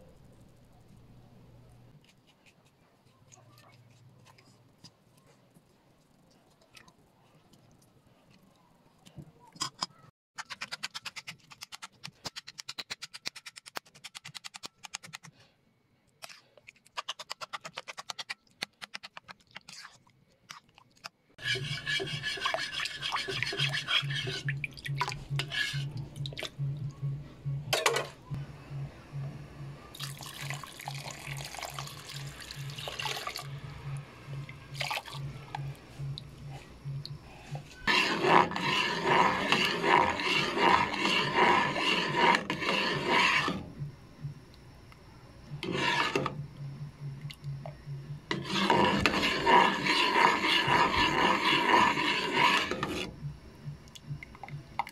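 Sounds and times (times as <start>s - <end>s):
spoon scraping ceramic bowl: 21.4s - 24.6s, 25.2s - 26.0s, 37.8s - 43.6s, 45.6s - 46.4s, 48.3s - 53.1s
spoon scraping aluminium pot: 21.4s - 26.4s, 37.8s - 43.7s, 45.6s - 46.4s, 48.3s - 53.1s
spoon stirring in bowl: 21.4s - 26.6s, 37.4s - 43.7s, 45.6s - 46.4s, 48.3s - 53.1s
low pulsing hum: 24.0s - 30.6s, 32.2s - 37.9s, 43.6s - 49.7s, 52.7s - 54.9s.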